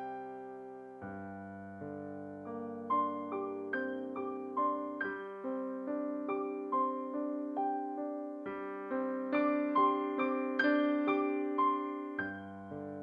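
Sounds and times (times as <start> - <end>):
piano melody: 0.0 - 13.0.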